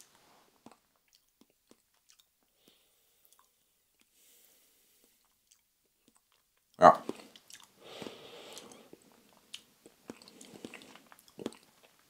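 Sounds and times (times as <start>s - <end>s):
soft breath: 2.5s - 3.4s, 4.1s - 5.2s, 7.8s - 9.2s
wet mouth clicks: 7.0s - 12.0s.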